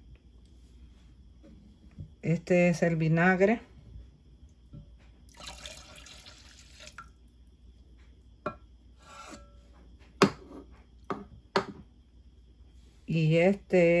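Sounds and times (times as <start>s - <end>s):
liquid pouring into jug: 5.3s - 7.2s
drips: 5.3s - 7.4s
taps on glass jug: 11.1s - 11.8s.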